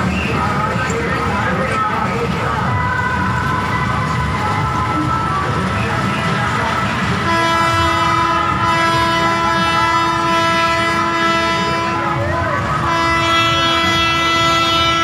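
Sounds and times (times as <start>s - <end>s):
loud steady horn-like tone: 7.2s - 15.0s.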